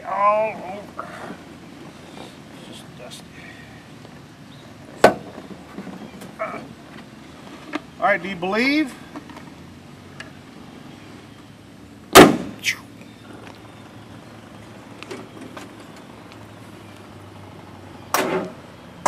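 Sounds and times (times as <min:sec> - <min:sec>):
car door slamming: 0:12.1 - 0:12.6.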